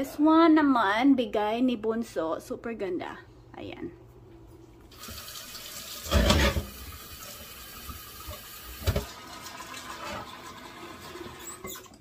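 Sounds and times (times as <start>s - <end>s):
faucet running into vase: 5.0s - 12.0s.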